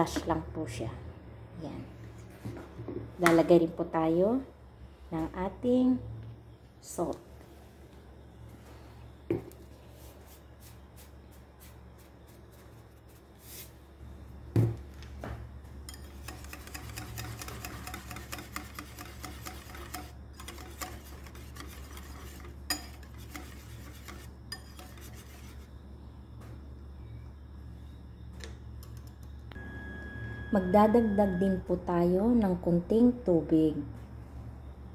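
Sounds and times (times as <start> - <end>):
whisk beating in a bowl: 15.9 - 25.7.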